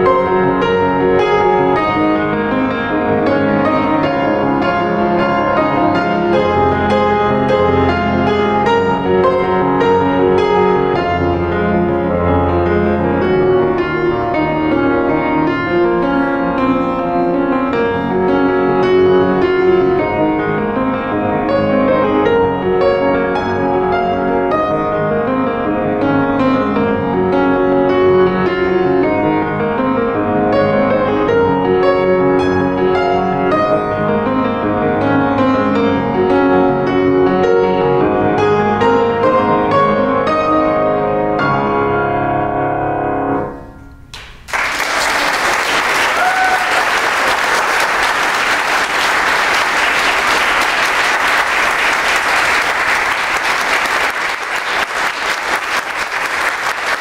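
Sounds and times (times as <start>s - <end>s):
solo grand piano: 0.0s - 44.8s
audience applause: 44.2s - 57.0s.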